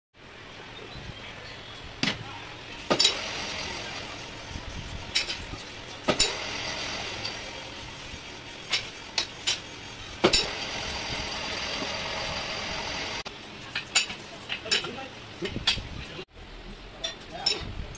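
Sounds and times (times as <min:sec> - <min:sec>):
lathe tool scraping metal: 0:03.0 - 0:13.2.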